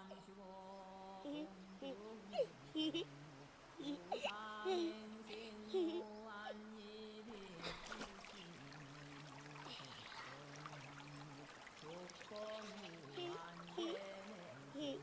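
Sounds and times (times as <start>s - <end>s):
child giggling: 5.7s - 6.0s
stream trickling over stones: 6.8s - 15.0s.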